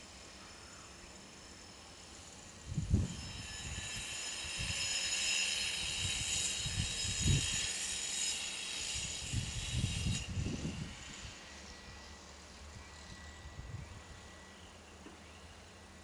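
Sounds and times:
wind buffeting microphone: 2.7 - 3.9, 6.0 - 7.6, 9.0 - 11.3, 13.5 - 14.2.

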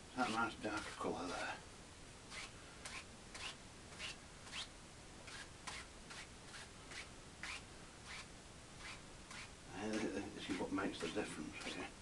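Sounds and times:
paint brush strokes on canvas: 0.2 - 1.6, 5.3 - 11.9.

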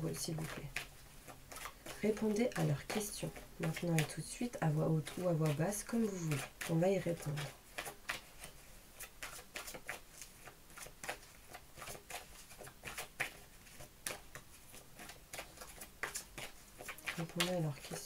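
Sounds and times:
cards being shuffled: 0.2 - 18.0.

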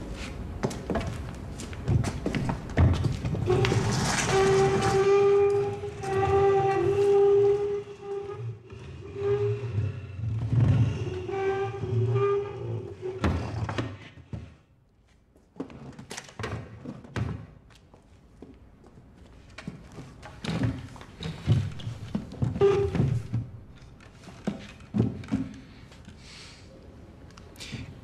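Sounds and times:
wooden chair scraping stone floor: 2.2 - 13.9.

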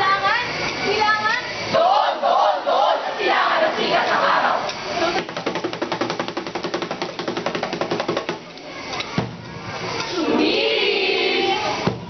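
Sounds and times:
chorus chanting staccato syllable: 1.7 - 5.0, 10.1 - 12.0
group shout: 1.8 - 4.7
sharp knock: 5.2 - 8.4.

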